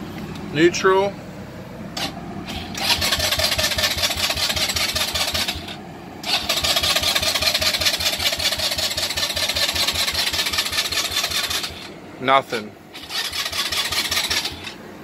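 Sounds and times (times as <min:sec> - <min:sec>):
electric starter cranking engine: 0:02.0 - 0:11.9, 0:12.9 - 0:14.8.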